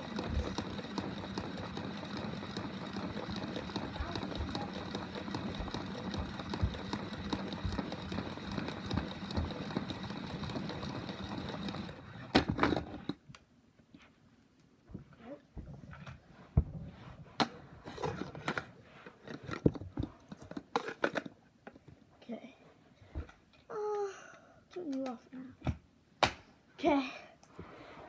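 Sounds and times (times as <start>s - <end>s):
rapid fine clicking: 0.0s - 13.2s
toy robot motors whirring: 0.0s - 13.2s.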